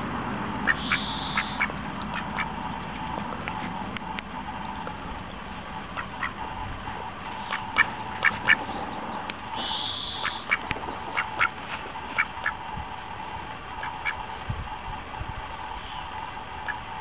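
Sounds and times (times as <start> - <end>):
faint steady hum: 0.0 - 17.0
duck quacking: 0.6 - 3.9, 5.8 - 6.5, 7.4 - 8.7, 9.6 - 12.6, 13.8 - 14.2, 16.6 - 16.9.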